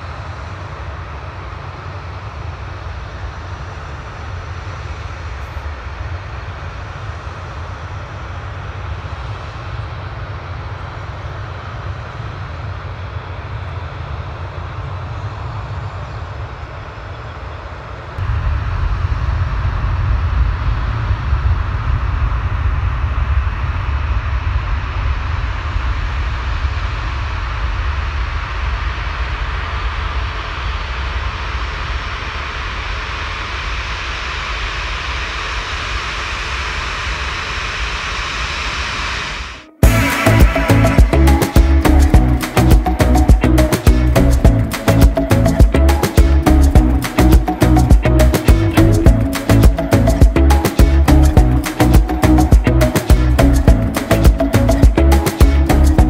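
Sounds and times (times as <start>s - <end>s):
jet airliner engines: 0.0s - 47.2s.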